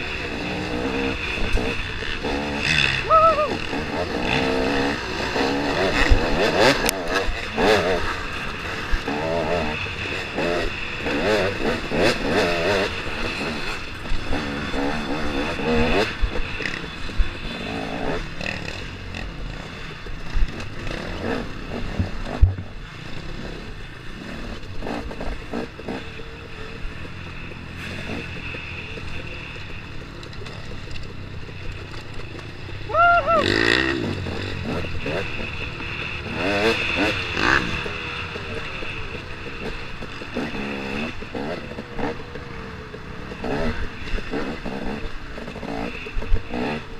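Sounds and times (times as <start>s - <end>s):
dirt bike engine revving: 0.0s - 46.9s.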